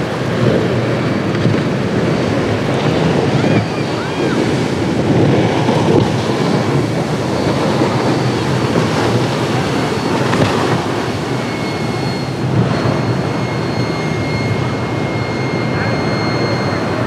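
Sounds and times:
boat engines rumbling: 0:00.0 - 0:17.0
waves breaking: 0:00.0 - 0:17.0
wind on microphone: 0:00.0 - 0:17.0.

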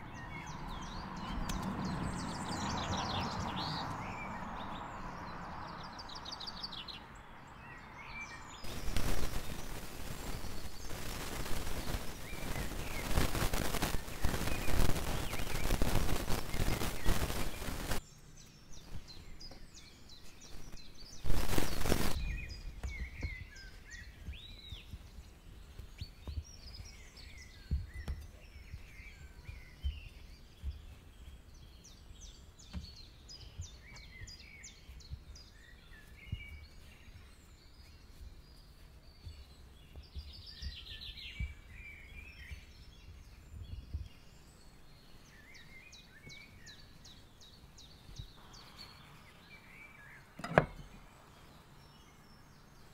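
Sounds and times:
small birds chirping: 0:00.0 - 0:52.9
loud rush of noise: 0:08.7 - 0:18.0, 0:21.2 - 0:22.3.

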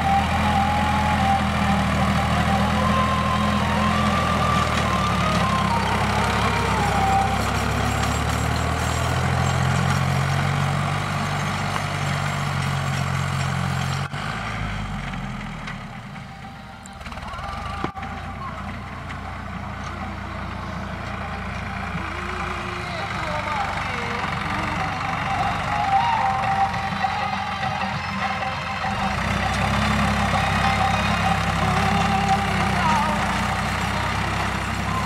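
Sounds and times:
tractor diesel engine running: 0:00.0 - 0:35.0.

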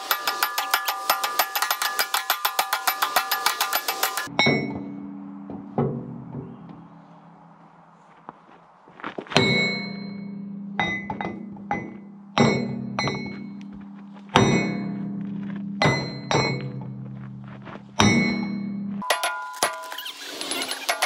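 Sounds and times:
sledgehammer striking steel pin: 0:00.0 - 0:06.8, 0:09.4 - 0:13.6, 0:14.4 - 0:15.2, 0:15.8 - 0:17.0, 0:18.0 - 0:19.9
steel ringing: 0:00.0 - 0:07.4, 0:09.4 - 0:13.7, 0:14.4 - 0:17.1, 0:18.0 - 0:21.0.

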